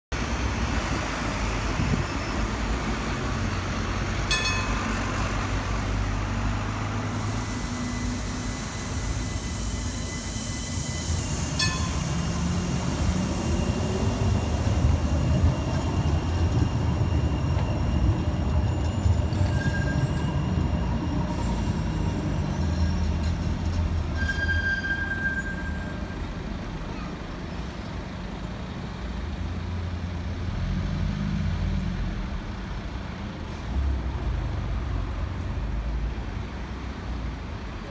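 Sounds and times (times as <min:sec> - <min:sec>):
tram moving off: 0:00.2 - 0:37.9
wheels squealing on track: 0:07.4 - 0:27.0.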